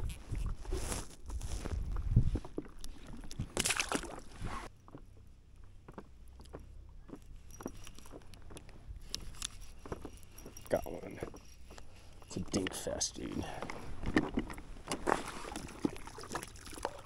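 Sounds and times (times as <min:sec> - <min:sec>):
water sloshing: 0:02.6 - 0:04.7, 0:13.8 - 0:17.0
water splashing: 0:03.2 - 0:04.4, 0:15.1 - 0:17.0.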